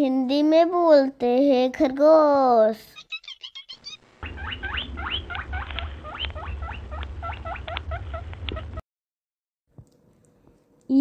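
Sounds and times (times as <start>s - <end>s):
rabbit squeaking: 2.9s - 8.8s.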